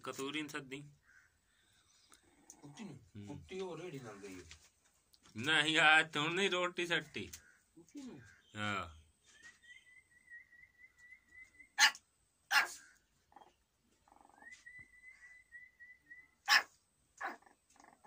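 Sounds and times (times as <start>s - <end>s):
puppies yapping: 11.7s - 14.7s, 16.4s - 18.0s
puppy whining: 12.6s - 15.4s.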